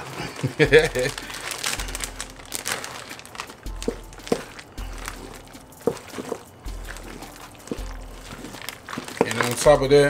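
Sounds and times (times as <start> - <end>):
spoon stirring creamy spaghetti: 2.8 - 10.0.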